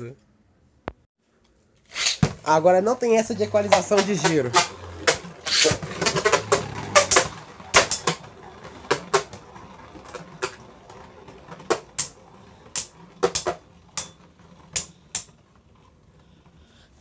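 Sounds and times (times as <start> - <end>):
spinning tops clashing: 3.3 - 15.4.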